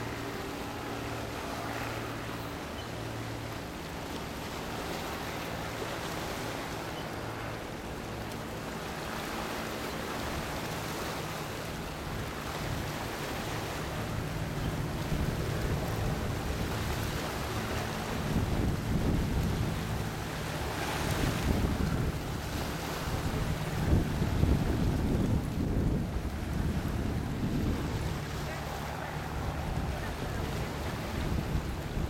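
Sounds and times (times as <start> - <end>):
ship low hum: 0.0 - 32.0
water at shoreline: 0.0 - 32.0
wind buffeting microphone: 12.0 - 32.0.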